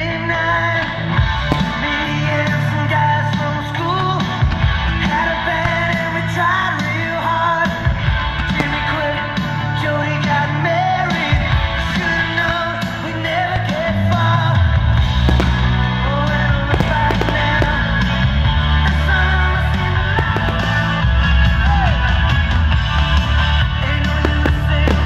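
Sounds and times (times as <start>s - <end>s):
person singing rock song: 0.0s - 22.4s, 23.6s - 25.0s
bass guitar: 0.0s - 25.0s.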